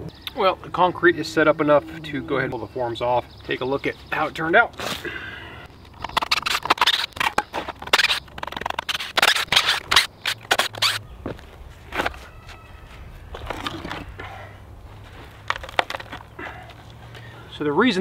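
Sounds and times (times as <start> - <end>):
boards rattling and scraping: 5.7 - 11.0, 15.1 - 16.9
short squeak: 6.0 - 11.1.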